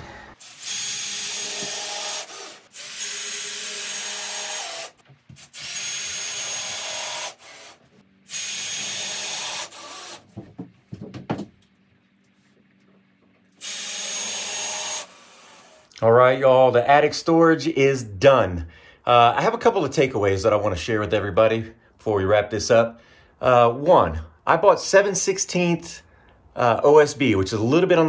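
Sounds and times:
power drill driving screws: 0.4s - 10.2s, 13.6s - 15.9s.

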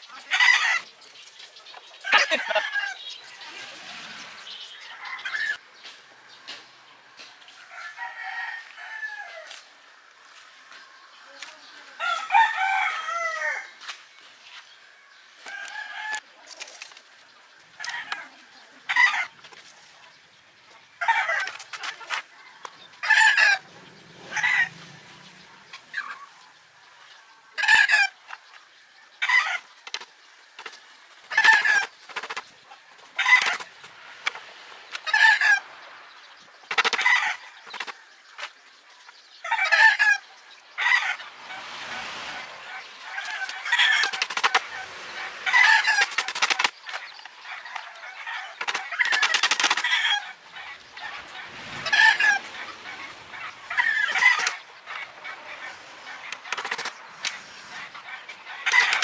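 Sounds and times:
chicken clucking: 39.4s - 59.0s.

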